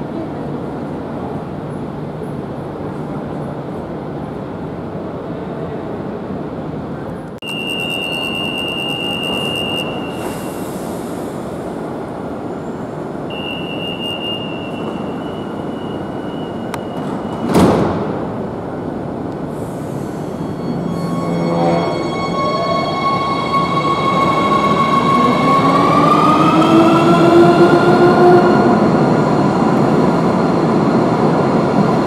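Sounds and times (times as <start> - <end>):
high squeal: 19.9 - 26.0.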